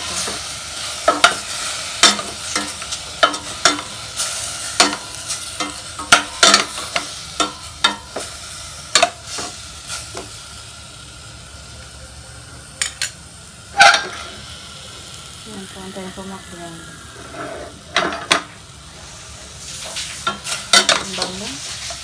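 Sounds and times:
meat sizzling in a pot: 0:00.0 - 0:22.0
utensil scraping a pot: 0:17.0 - 0:18.3.

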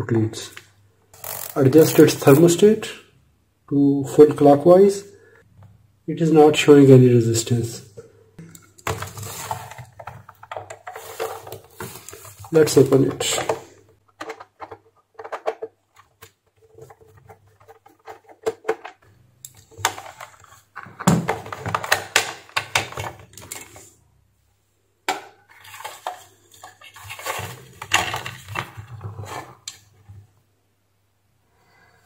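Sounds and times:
hard plastic clattering: 0:08.8 - 0:23.9, 0:25.1 - 0:30.2.

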